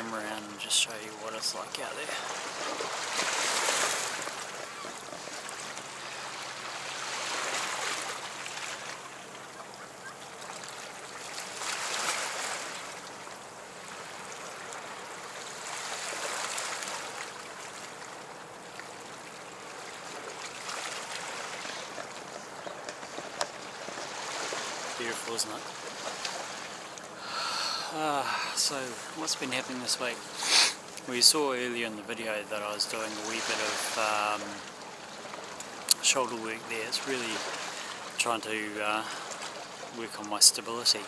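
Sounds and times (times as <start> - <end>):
waves washing against rocks: 2.0 - 4.8.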